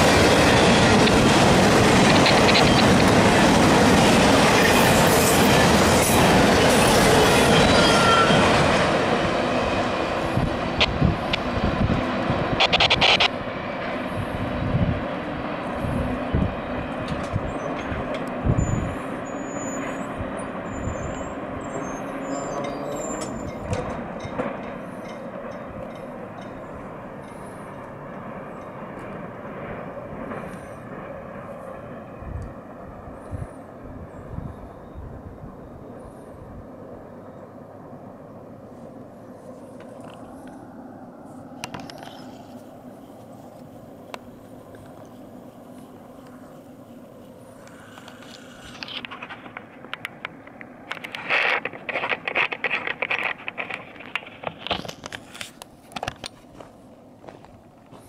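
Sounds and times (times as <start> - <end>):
freight train wheels rumbling on rail: 0.0 - 58.0
crunching and scraping on gravel: 51.0 - 58.0.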